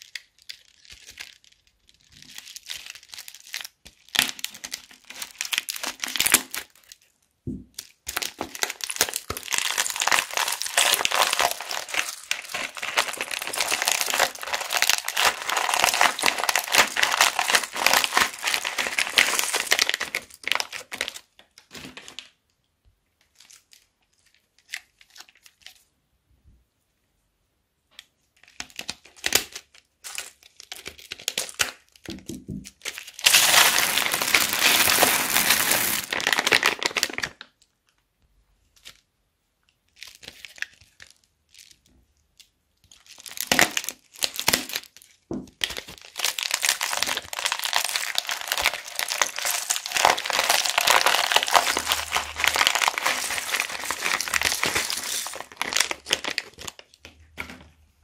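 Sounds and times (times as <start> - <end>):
plastic bags crinkling: 7.8 - 22.3, 32.8 - 37.4, 42.9 - 57.2
plastic pieces pouring: 8.2 - 21.0, 33.0 - 37.4, 45.7 - 56.8
beads pouring onto slime: 8.6 - 20.4, 33.2 - 37.0, 46.1 - 56.5.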